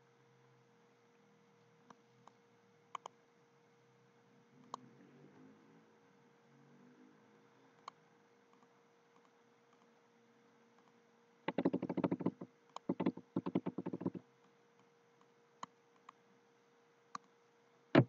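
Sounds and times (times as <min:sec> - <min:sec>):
mouse clicks: 0:11.5 - 0:14.2
typing on computer keyboard: 0:11.5 - 0:14.2.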